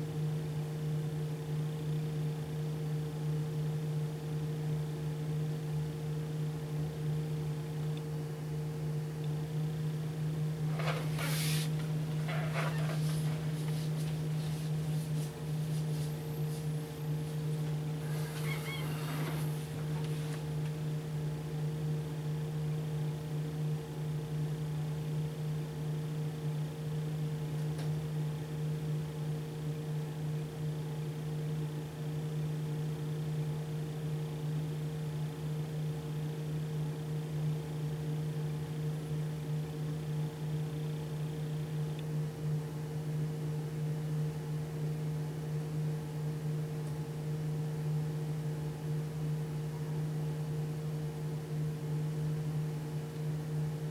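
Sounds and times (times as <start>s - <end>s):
steady low hum: 0.0s - 53.9s
background hiss: 10.7s - 20.6s.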